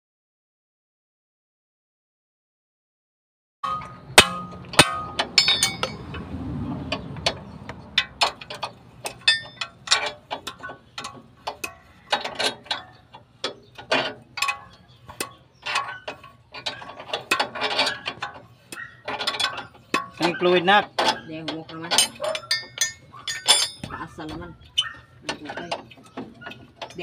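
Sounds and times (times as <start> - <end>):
hammer striking metal: 3.6 - 6.2.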